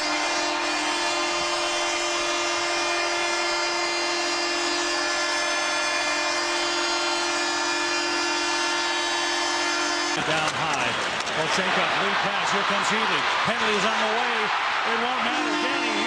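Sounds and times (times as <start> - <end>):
arena goal horn blast: 0.0 - 10.2, 13.5 - 16.0
crowd cheering: 0.0 - 16.0.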